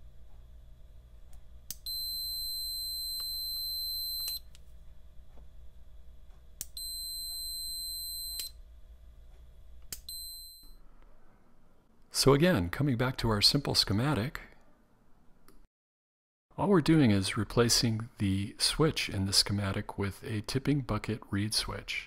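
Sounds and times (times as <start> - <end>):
multimeter continuity beep: 1.7 - 4.5, 6.6 - 8.6, 10.0 - 10.8.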